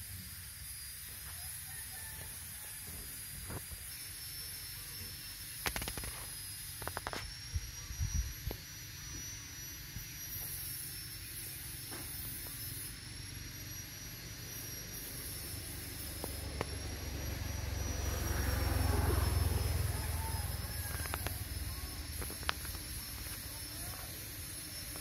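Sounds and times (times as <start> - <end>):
faint high-pitched whine: 0.0 - 25.0
high hiss: 0.0 - 25.0
sharp clicks: 22.1 - 23.5.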